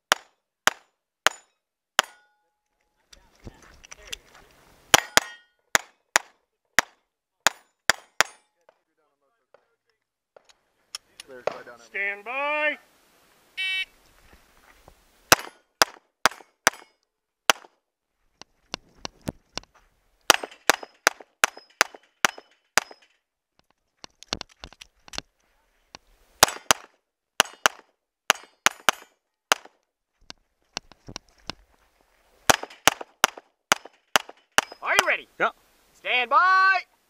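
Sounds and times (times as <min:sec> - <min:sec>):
steel target plates ringing: 0:01.3 - 0:02.4, 0:04.9 - 0:05.6, 0:33.8 - 0:34.9
pistol shots: 0:15.3 - 0:16.9, 0:20.3 - 0:23.0, 0:26.4 - 0:29.7, 0:32.5 - 0:34.8.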